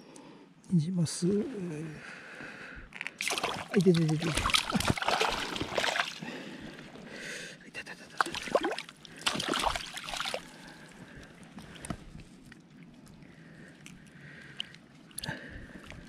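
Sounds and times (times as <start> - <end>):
fish splashing in a net: 3.2 - 6.2, 8.2 - 10.8.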